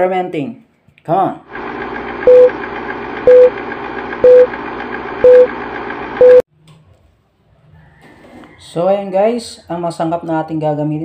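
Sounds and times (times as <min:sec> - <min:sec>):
film projector whir: 0:01.5 - 0:06.4
short loud beeps: 0:04.2 - 0:04.5, 0:05.2 - 0:05.5, 0:06.2 - 0:06.4.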